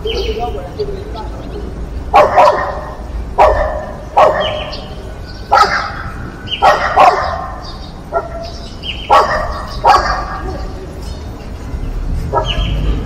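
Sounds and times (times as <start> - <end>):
dog barking: 2.1 - 4.9, 5.5 - 10.8, 12.3 - 12.8.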